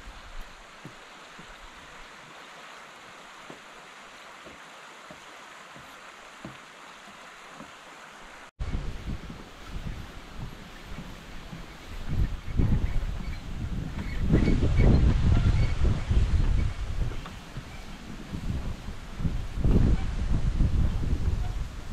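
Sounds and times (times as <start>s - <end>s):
water rushing over rocks: 0.0s - 21.9s
wind rumbling on microphone: 8.6s - 21.9s.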